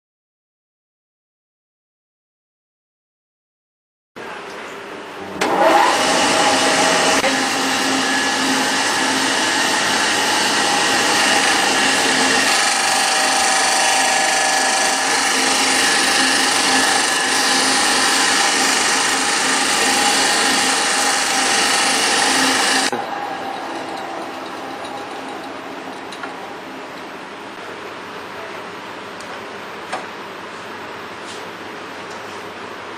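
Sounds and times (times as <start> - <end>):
disc sander motor whining: 5.4 - 26.8
wood block sanding: 6.6 - 23.0.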